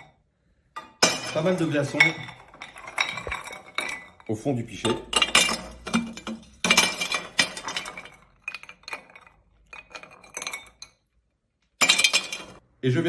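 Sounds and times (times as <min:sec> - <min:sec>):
ice cubes clinking in glass pitcher: 0:01.3 - 0:04.3, 0:05.1 - 0:10.9, 0:11.8 - 0:12.6.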